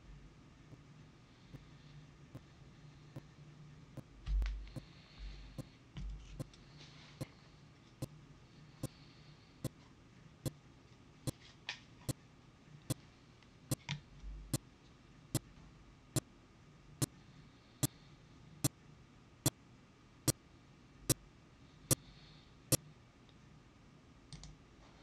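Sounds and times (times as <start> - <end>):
soft low thump: 4.3 - 4.7.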